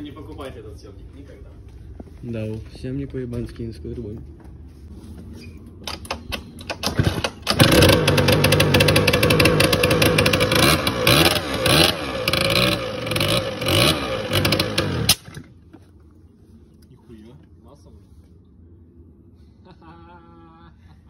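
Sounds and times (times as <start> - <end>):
scooter engine starting and revving: 6.8 - 15.6.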